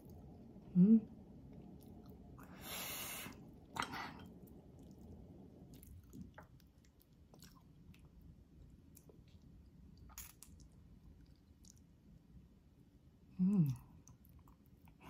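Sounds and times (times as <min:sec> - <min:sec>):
person chewing meat: 0:04.4 - 0:11.9.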